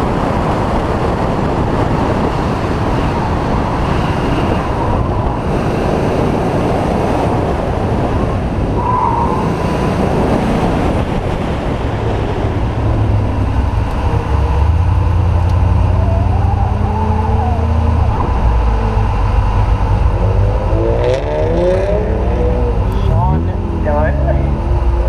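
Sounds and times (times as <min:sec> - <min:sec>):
car engine and exhaust: 0:00.0 - 0:25.0
wind rush over microphone: 0:00.0 - 0:25.0.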